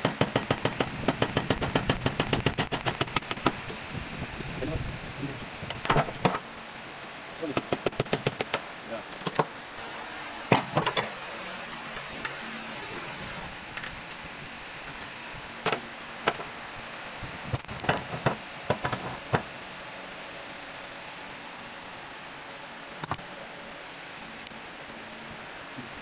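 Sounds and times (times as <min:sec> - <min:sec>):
workshop background noise: 0:05.5 - 0:06.6, 0:07.2 - 0:16.6, 0:17.2 - 0:19.6
metal knocks and clunks: 0:17.8 - 0:19.5.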